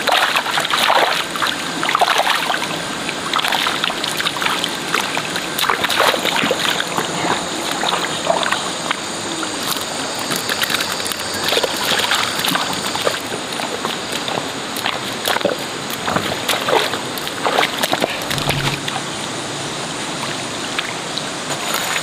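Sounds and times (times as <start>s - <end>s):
muddy water splashing: 0.0s - 19.6s
steady high-pitched buzz: 18.0s - 20.6s.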